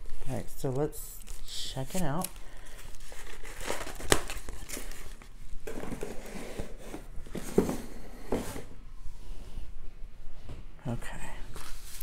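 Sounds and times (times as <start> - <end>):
plastic film crinkling: 1.0 - 5.4.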